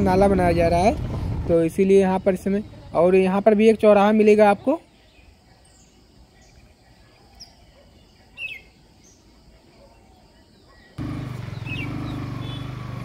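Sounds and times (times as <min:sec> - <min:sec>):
motor vehicle engine running: 0:00.0 - 0:03.0, 0:11.0 - 0:13.0
bird chirps: 0:04.8 - 0:13.0.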